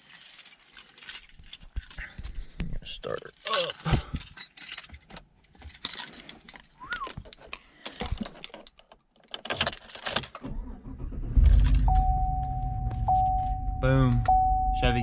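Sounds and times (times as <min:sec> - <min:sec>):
keys jingling: 0:00.0 - 0:02.1, 0:03.0 - 0:10.6
car engine starting: 0:10.4 - 0:14.7.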